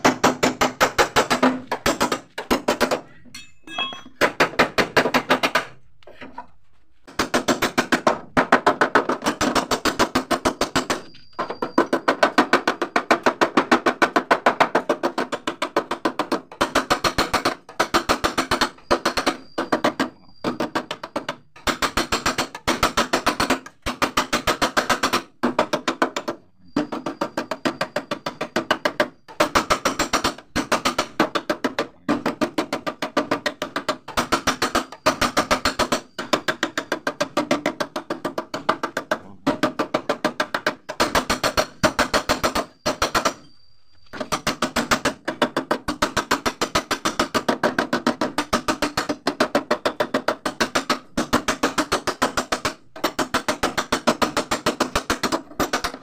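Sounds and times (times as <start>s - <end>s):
rapid hammer taps on sheet metal: 44.2s - 56.0s.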